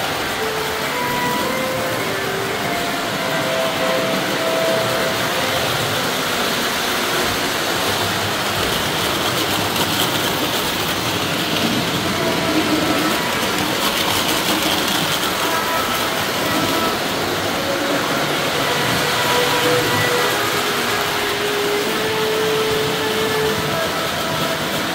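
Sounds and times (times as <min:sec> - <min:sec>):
model trains whirring on track: 0:00.0 - 0:24.9.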